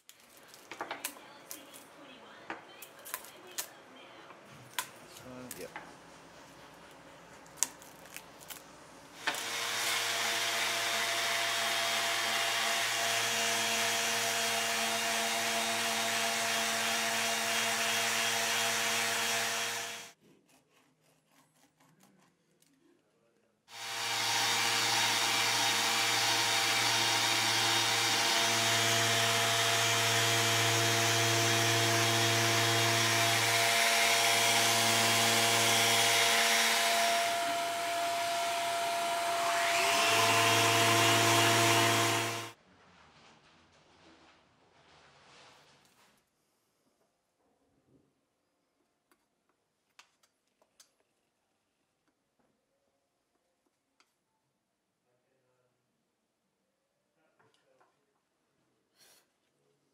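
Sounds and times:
orbital sander on wood: 9.2 - 20.2, 23.7 - 42.6.

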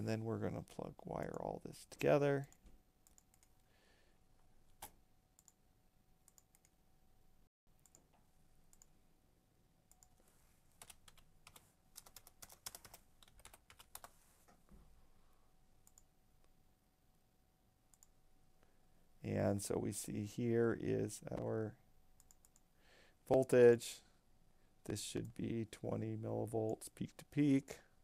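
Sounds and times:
computer mouse clicks: 2.5 - 3.7, 4.7 - 5.6, 6.3 - 6.8, 7.8 - 8.9, 9.9 - 10.2, 15.8 - 16.1, 17.9 - 18.1, 22.2 - 22.7
computer keyboard clicks: 10.8 - 14.1.

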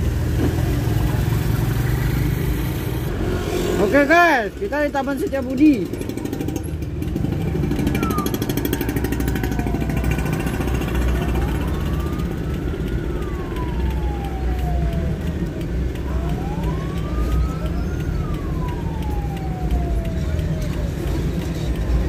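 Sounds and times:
engine drone: 5.7 - 22.0
ambulance siren wailing: 5.8 - 22.0.

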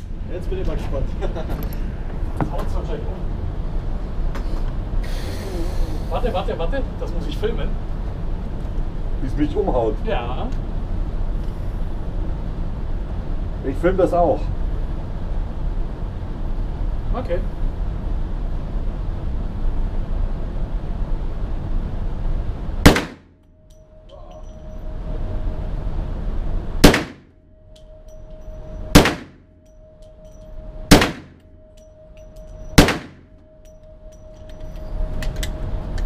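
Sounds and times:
steady background noise: 0.0 - 36.0
gunshots with ringing tail: 22.8 - 23.3, 26.8 - 27.3, 28.9 - 29.6, 30.9 - 31.4, 32.7 - 33.4.

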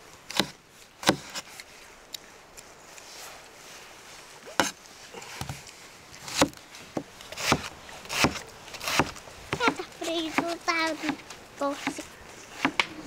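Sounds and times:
chopping wood: 0.3 - 1.4, 6.3 - 11.2, 12.6 - 13.0.

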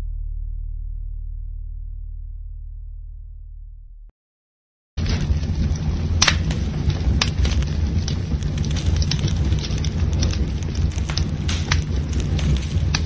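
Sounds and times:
fire crackles and pops: 5.0 - 13.0
rumble of burning flames: 5.0 - 13.0.

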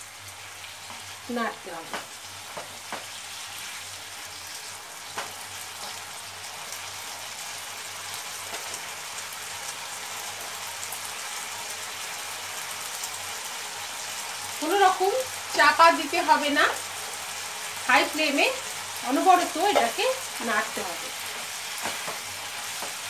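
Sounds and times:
vegetables sizzling in a frying pan: 0.0 - 23.0.

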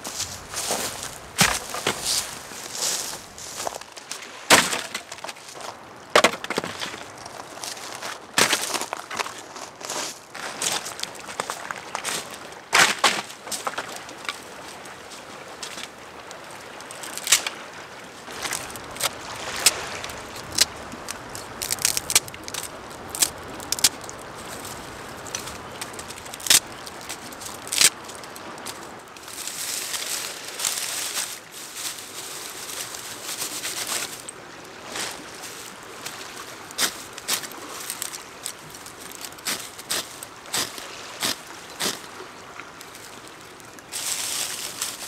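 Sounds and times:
dry straw rustling: 0.0 - 5.8, 18.3 - 42.1, 42.8 - 45.0
dry twigs snapping: 16.9 - 17.6, 18.3 - 32.0, 36.7 - 42.0.

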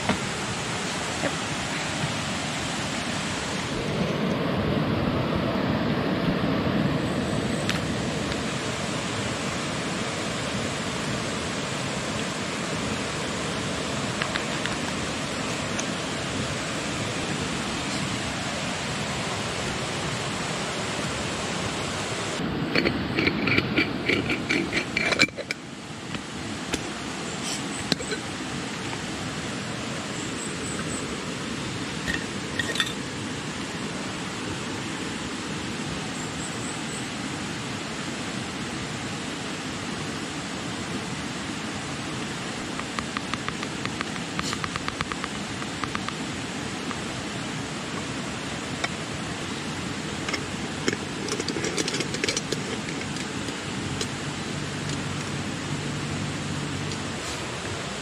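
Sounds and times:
river water rushing: 0.0 - 58.0
handling clicks and knocks: 42.8 - 46.2, 50.3 - 54.1
rapid ticks: 42.8 - 46.2.

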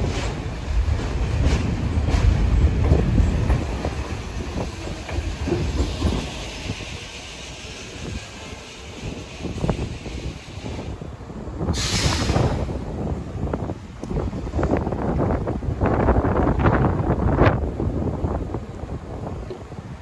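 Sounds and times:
train wheels clacking over rail joints: 0.0 - 11.0
low train rumble: 0.0 - 20.0.

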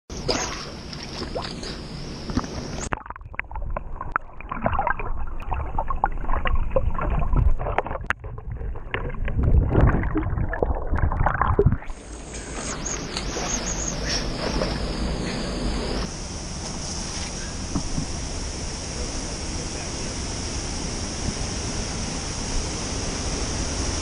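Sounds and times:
muffled underwater churning and bubbles: 0.1 - 16.1
underwater knocks and clicks: 2.3 - 11.9
waterfall rushing: 17.5 - 24.0.

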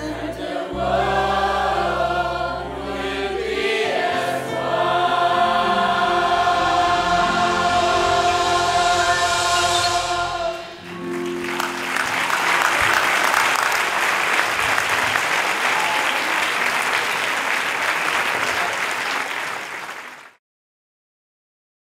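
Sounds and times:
choir singing a chord: 0.0 - 14.0
audience applauding: 8.1 - 20.4.

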